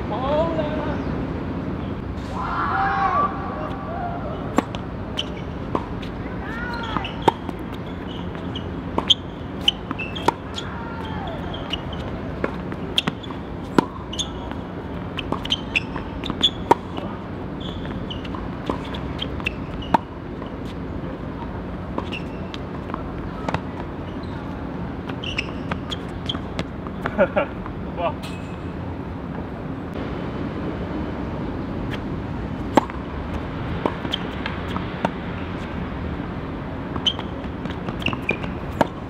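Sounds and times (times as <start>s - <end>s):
steady background noise: 0.0s - 39.0s
tennis balls struck by rackets: 4.3s - 20.8s, 21.9s - 24.1s, 31.9s - 35.3s.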